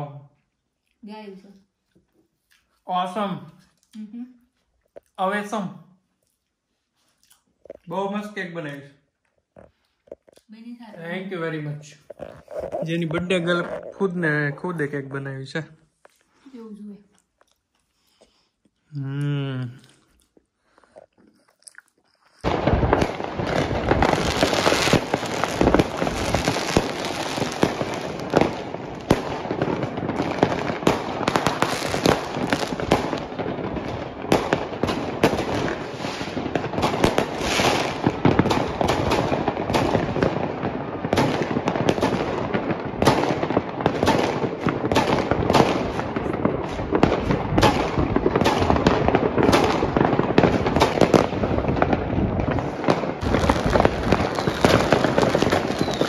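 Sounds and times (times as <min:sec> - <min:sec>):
fireworks and firecrackers banging: 0:10.8 - 0:15.7, 0:22.4 - 0:56.0.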